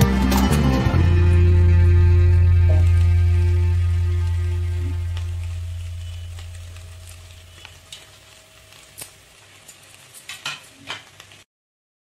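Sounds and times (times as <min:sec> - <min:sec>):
metal clinking on pan: 0:10.3 - 0:11.2.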